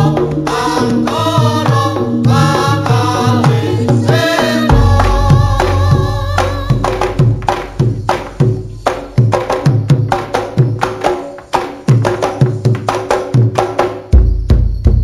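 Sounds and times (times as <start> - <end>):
person singing: 0.0 - 7.3
hand drum strokes: 0.0 - 14.3.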